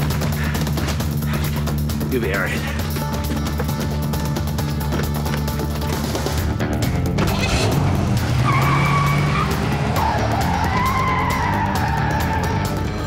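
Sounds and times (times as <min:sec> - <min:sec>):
car engine revving: 0:05.9 - 0:13.0
tyres squealing: 0:07.2 - 0:13.0.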